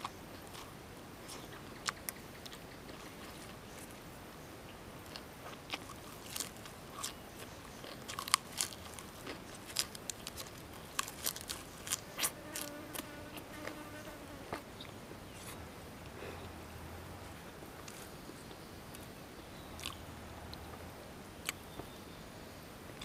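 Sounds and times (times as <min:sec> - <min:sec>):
person chewing crisp lettuce: 0:00.0 - 0:03.9, 0:05.0 - 0:13.8, 0:19.8 - 0:20.0, 0:21.4 - 0:21.6
faint steady buzz: 0:00.0 - 0:23.0.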